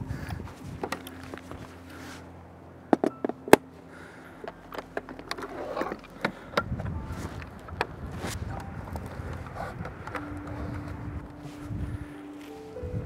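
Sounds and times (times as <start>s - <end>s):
wind buffeting microphone: 0.0s - 1.9s, 6.2s - 13.0s.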